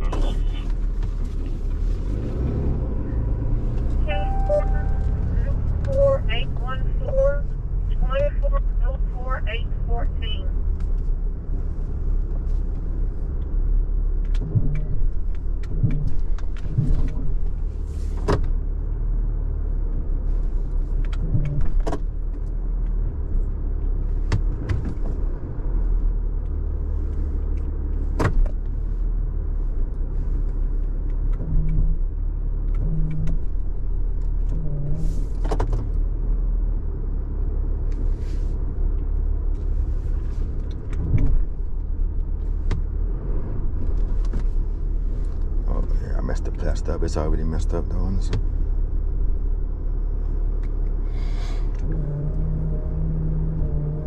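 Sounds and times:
vehicle engine rumbling: 0:00.0 - 0:54.0
sharp clicks and knocks: 0:14.2 - 0:17.6.

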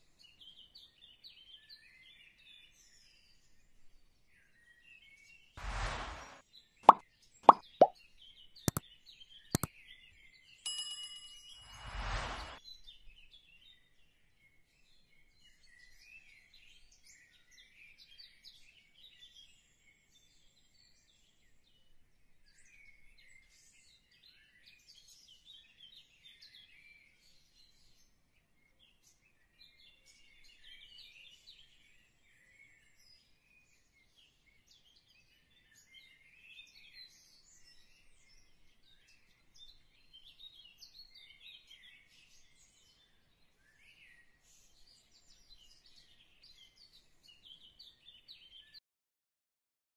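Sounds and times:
bird chirps and song: 0:00.0 - 0:06.4, 0:07.5 - 0:10.6, 0:12.4 - 0:48.8
short whoosh: 0:05.6 - 0:06.4, 0:11.7 - 0:12.6.

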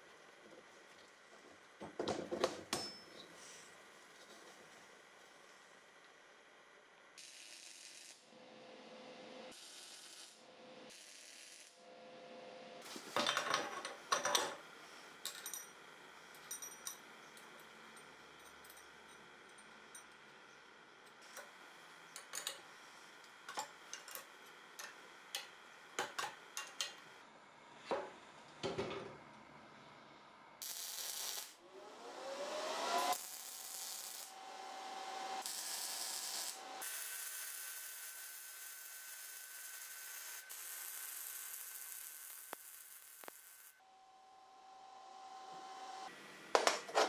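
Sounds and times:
welder arc crackling hiss: 0:07.2 - 0:08.2, 0:09.5 - 0:11.8, 0:30.6 - 0:31.6, 0:32.9 - 0:43.8
metal parts and tools clinking: 0:13.1 - 0:14.6, 0:15.2 - 0:20.3, 0:22.1 - 0:22.7, 0:23.4 - 0:27.1.

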